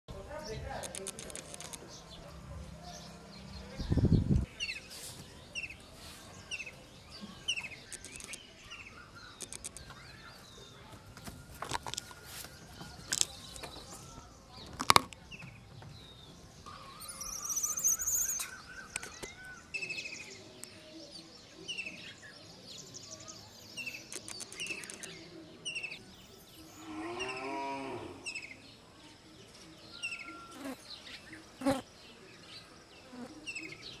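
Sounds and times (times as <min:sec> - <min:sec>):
sharp clicks: 0:00.8 - 0:01.9, 0:07.8 - 0:08.5, 0:09.3 - 0:10.0, 0:24.1 - 0:25.2.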